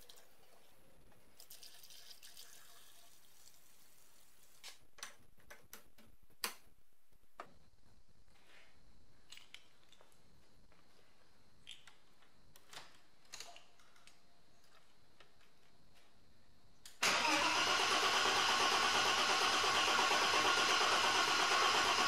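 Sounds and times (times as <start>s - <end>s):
starter cranking car engine: 17.0s - 22.0s.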